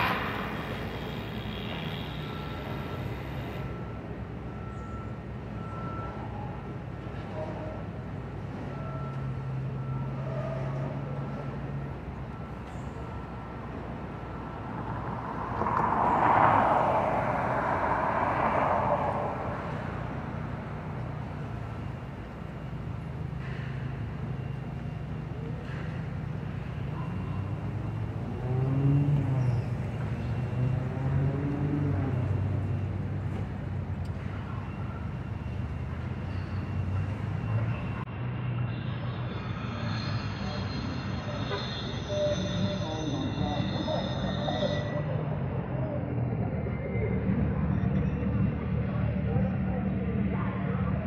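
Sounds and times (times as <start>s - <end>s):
high-pitched squeal: 0.0s - 4.0s, 34.2s - 45.4s
vehicle passing: 0.0s - 4.7s, 13.4s - 41.4s
low hum of traffic: 0.0s - 51.0s.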